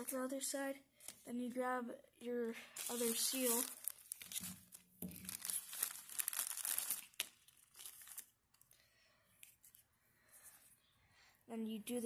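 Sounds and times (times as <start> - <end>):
plastic bag crinkling: 2.8 - 8.7.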